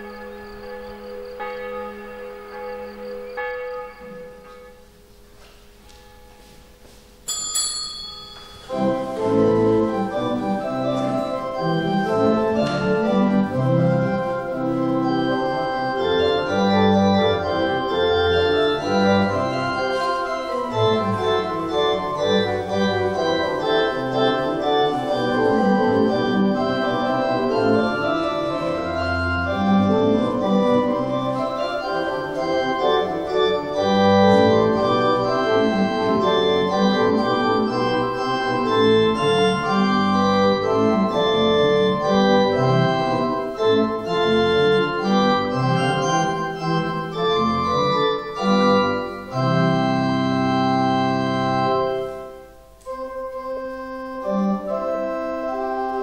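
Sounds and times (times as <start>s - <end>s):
church organ playing a hymn: 0.0s - 7.2s, 8.6s - 56.0s
small bell ringing: 7.2s - 8.9s.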